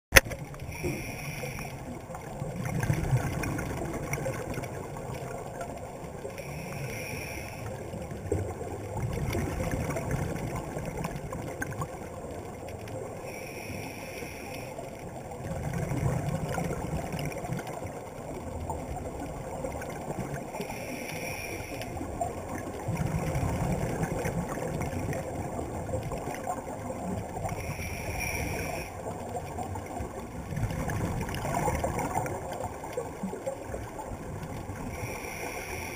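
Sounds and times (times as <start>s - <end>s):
exhaled air bubbling underwater: 0.2s - 35.9s
regulator inhalation hiss: 0.7s - 1.8s, 6.4s - 7.8s, 13.3s - 14.8s, 20.6s - 22.0s, 27.5s - 29.0s, 34.9s - 35.9s.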